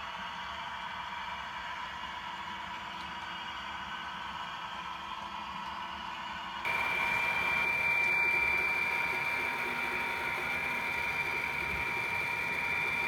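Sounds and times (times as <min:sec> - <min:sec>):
model locomotive high-pitched whine: 0:00.0 - 0:13.0
model train running hiss: 0:04.2 - 0:13.0.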